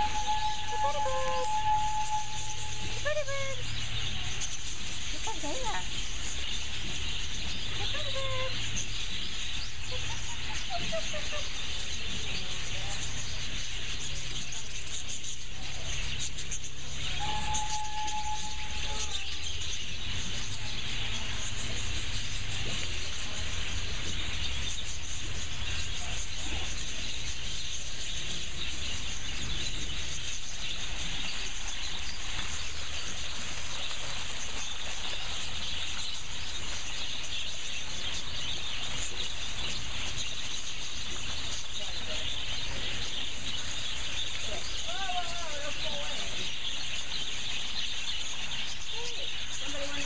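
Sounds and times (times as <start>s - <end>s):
whistle-like tone: 0.0s - 3.2s, 17.2s - 19.1s
flock of budgerigars chattering: 0.0s - 50.0s.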